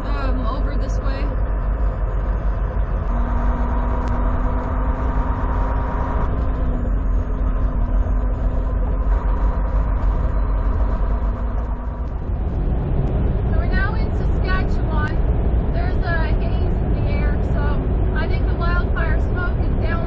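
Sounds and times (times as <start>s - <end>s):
road noise: 0.0s - 20.0s
truck engine rumble: 0.0s - 20.0s.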